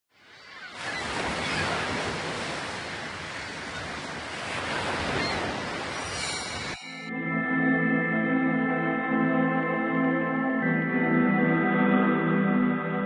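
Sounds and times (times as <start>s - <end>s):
ocean waves breaking: 0.2s - 7.1s.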